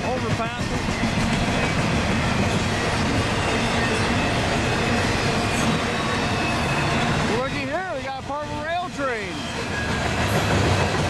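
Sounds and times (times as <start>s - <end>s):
steel train wheels on rails: 0.0s - 11.0s.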